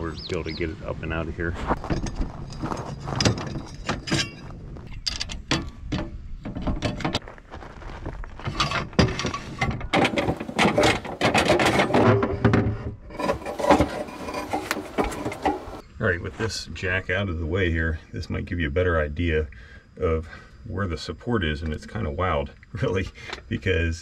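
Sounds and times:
metal clanks and scraping: 1.7 - 7.2, 8.4 - 15.8.

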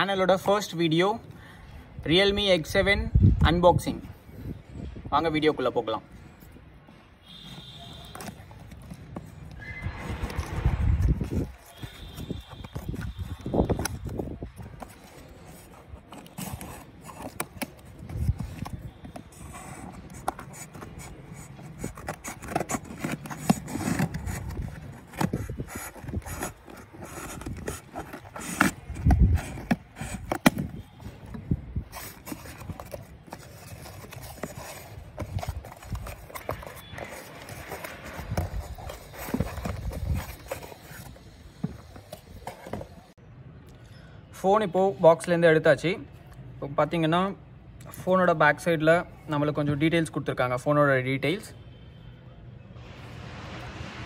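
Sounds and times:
cardboard box handling: 7.6 - 9.6, 10.2 - 43.1.

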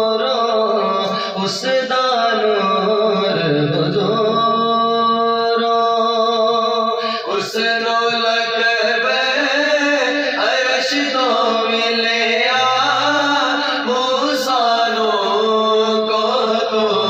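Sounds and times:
men chanting in unison: 6.4 - 17.0.

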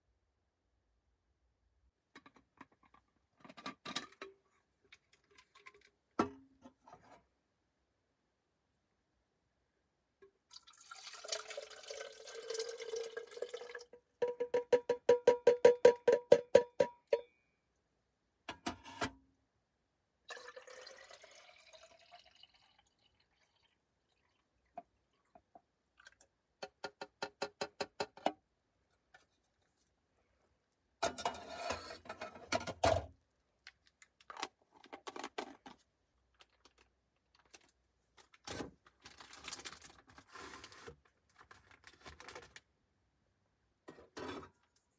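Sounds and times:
clicks and clatter of kitchen gear: 2.2 - 4.4
liquid pouring: 10.5 - 14.0, 20.3 - 25.4.

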